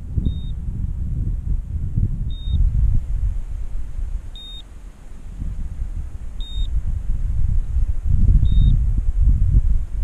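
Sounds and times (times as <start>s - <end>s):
wind rumble on microphone: 0.0s - 10.0s
short high beeps: 0.3s - 0.6s, 2.3s - 2.6s, 4.4s - 4.7s, 6.4s - 6.7s.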